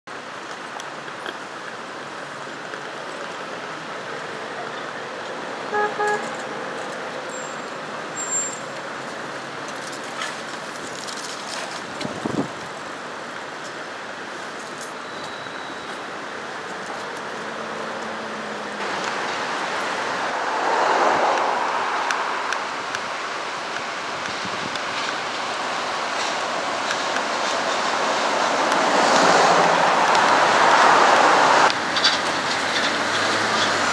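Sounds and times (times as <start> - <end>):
city traffic noise: 0.1 - 33.9
car horn short beeps: 5.7 - 6.3.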